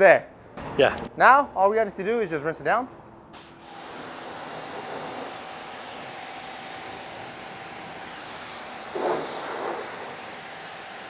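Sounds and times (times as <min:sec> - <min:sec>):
water hissing from hose spray gun: 0:03.4 - 0:11.0.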